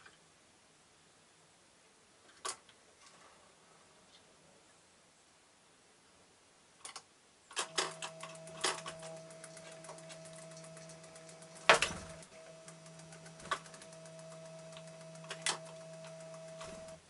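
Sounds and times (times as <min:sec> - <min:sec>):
small clicks: 0:06.8 - 0:17.0
stepping motor humming: 0:07.6 - 0:17.0.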